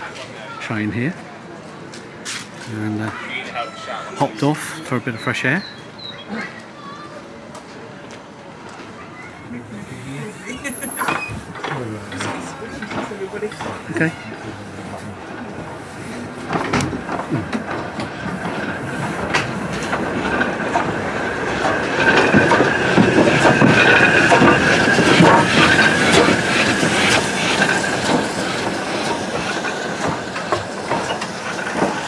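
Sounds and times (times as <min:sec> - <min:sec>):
steam locomotive passing: 0:00.0 - 0:32.0
train wheels squealing: 0:10.5 - 0:11.5
clanks and clicks over track: 0:10.6 - 0:32.0.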